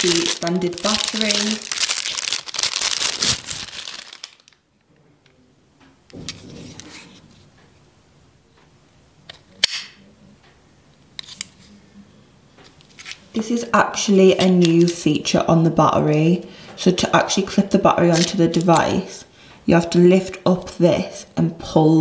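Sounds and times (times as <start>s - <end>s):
plastic bag crinkling: 0.0s - 4.7s.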